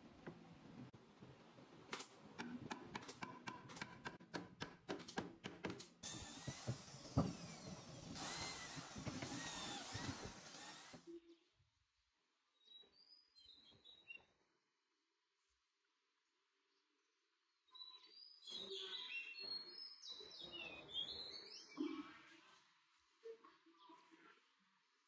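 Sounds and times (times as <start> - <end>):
electric drill boring into wood: 6.0 - 11.0.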